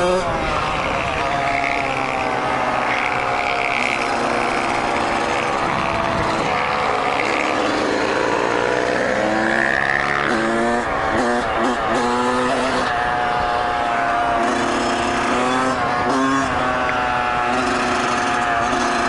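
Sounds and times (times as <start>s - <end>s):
dirt bike engine running: 0.0s - 19.0s
wind rush: 5.5s - 6.9s.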